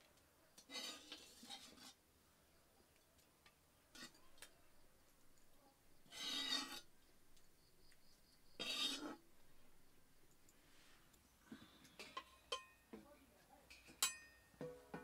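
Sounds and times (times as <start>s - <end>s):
metal ladle scraping a pan: 0.6s - 2.0s, 3.9s - 4.5s, 6.0s - 6.9s, 8.5s - 9.3s.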